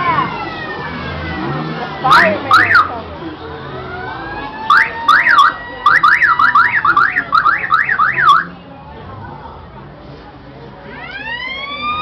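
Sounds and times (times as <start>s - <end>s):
siren in rapid sweeps: 0.0s - 3.0s, 3.8s - 8.5s, 10.9s - 12.0s.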